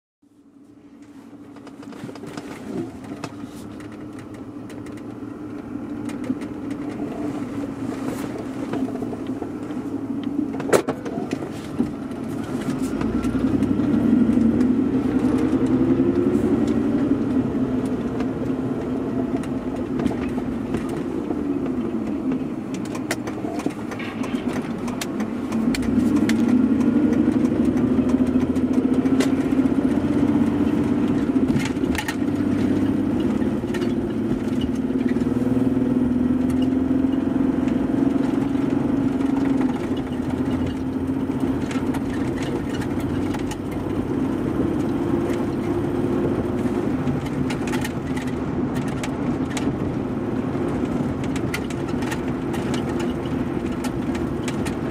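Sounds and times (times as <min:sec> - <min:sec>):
car engine: 0:00.2 - 0:54.9
road noise: 0:00.2 - 0:54.9.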